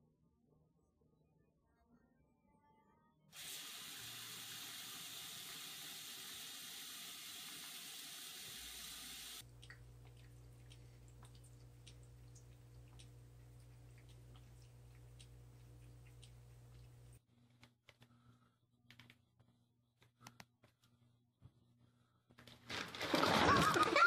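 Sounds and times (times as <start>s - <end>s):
faucet water pouring into basin: 3.4s - 13.0s.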